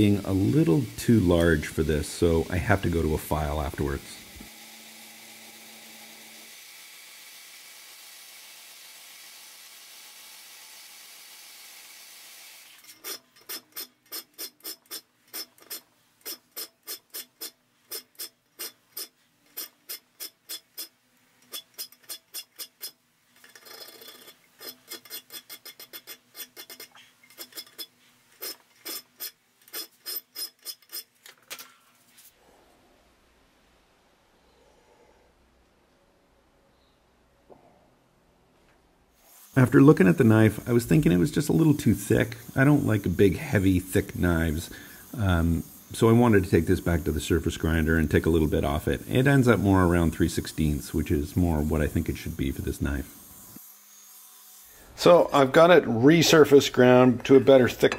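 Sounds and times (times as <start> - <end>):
grinder wheel grinding steel: 0.0 - 31.2, 39.2 - 55.4
hand file rasping on metal: 13.0 - 20.9, 21.5 - 31.1.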